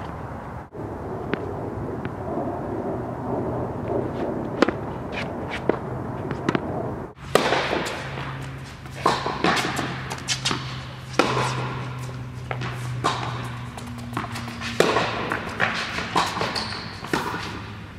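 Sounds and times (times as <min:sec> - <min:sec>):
steady low hum: 0:00.0 - 0:17.9
racket striking tennis ball: 0:04.1 - 0:17.8
ball bouncing on hard court: 0:04.6 - 0:17.6.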